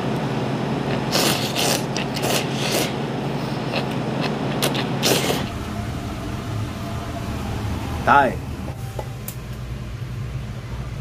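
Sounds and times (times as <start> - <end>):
steady low hum: 0.0 - 11.0
person slurping noodles: 0.9 - 5.6.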